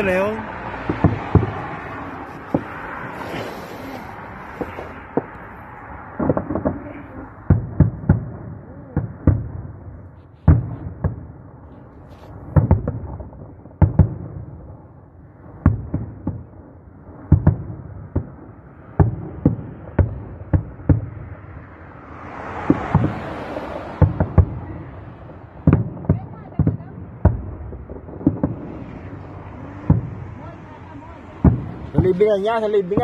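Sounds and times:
fireworks bursting: 0.0s - 14.9s, 15.6s - 33.0s.

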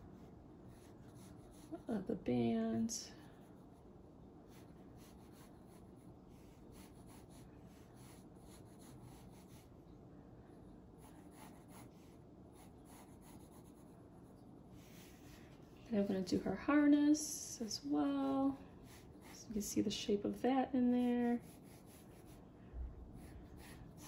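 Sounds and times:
pencil scratching on paper: 0.2s - 1.9s, 4.5s - 9.6s, 11.0s - 13.9s, 18.8s - 19.6s, 21.0s - 22.4s, 23.2s - 24.0s.

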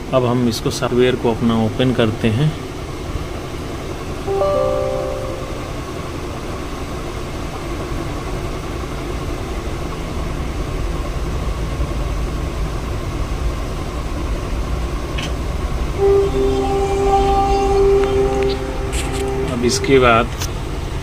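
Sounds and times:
steady tone: 4.3s - 6.1s, 16.0s - 20.9s
faint hum: 4.3s - 6.2s, 15.5s - 21.0s.

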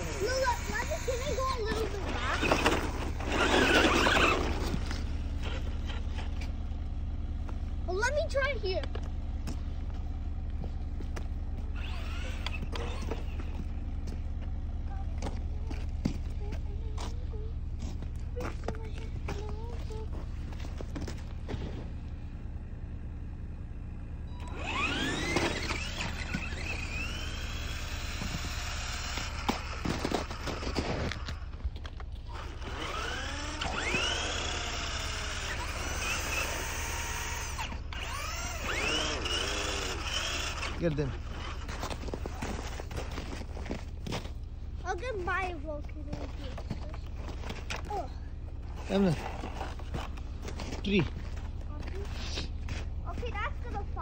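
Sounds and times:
electric motor whining: 0.0s - 6.6s, 11.6s - 14.2s, 24.1s - 44.3s
steady low hum: 0.0s - 54.0s.

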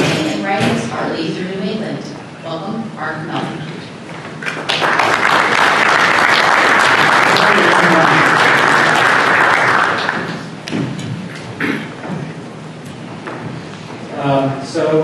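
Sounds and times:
audience applause: 4.4s - 10.6s.

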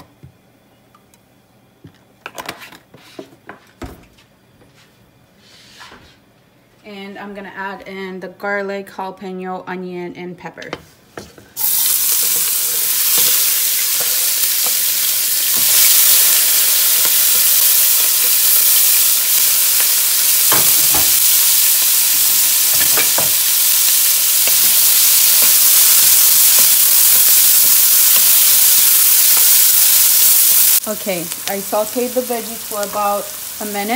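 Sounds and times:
vegetables sizzling in oil: 11.6s - 33.9s.

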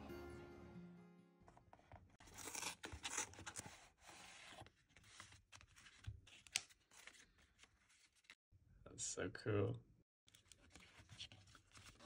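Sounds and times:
paper rustling and tearing: 2.2s - 8.4s.

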